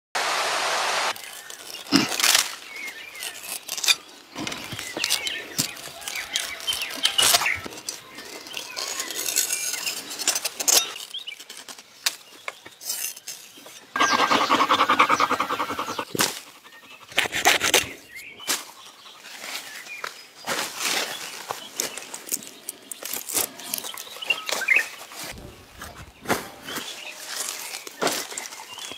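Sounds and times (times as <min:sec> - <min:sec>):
dry fibre rustling and snapping: 0:01.2 - 0:13.8, 0:20.9 - 0:25.4.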